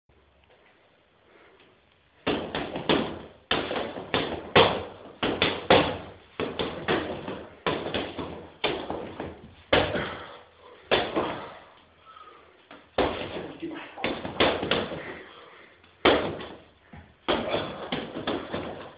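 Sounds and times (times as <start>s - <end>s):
punches and kicks smacking target: 2.2s - 10.2s, 10.9s - 11.6s, 12.9s - 15.0s, 16.0s - 16.6s, 17.2s - 18.9s.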